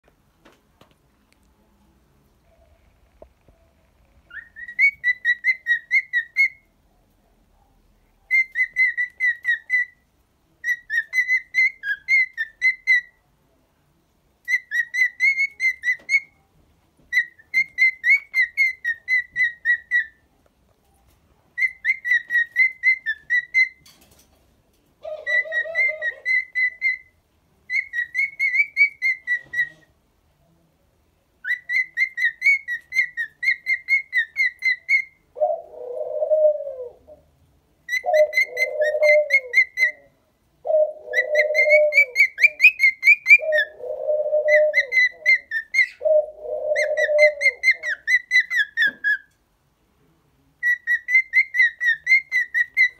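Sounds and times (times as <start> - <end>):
cockatiel whistling: 4.3 - 6.6, 8.3 - 10.0, 14.5 - 16.3, 17.1 - 20.2, 21.6 - 23.8, 25.2 - 27.1, 27.7 - 29.9, 31.4 - 35.2, 37.9 - 40.0, 41.1 - 43.7, 44.4 - 46.0, 46.7 - 49.3, 50.6 - 52.9
low cooing: 35.4 - 37.3, 38.1 - 39.7, 40.6 - 42.6, 43.3 - 48.0.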